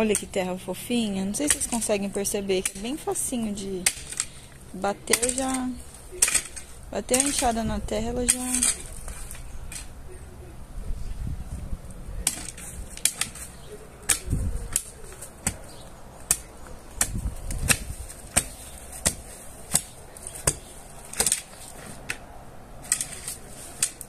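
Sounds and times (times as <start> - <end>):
hoe chopping into soil: 5.1 - 7.6, 12.2 - 22.1.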